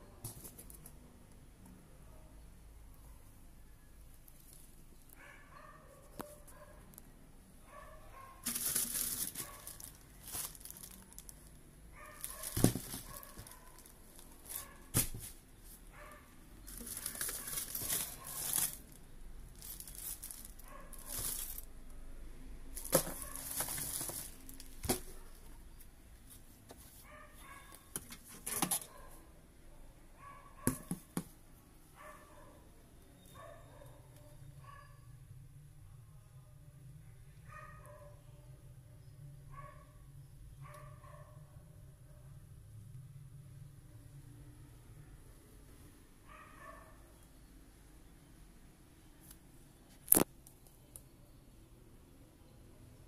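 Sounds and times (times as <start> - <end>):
plastic bags crinkling: 8.4 - 15.4, 16.6 - 21.8, 22.7 - 25.2.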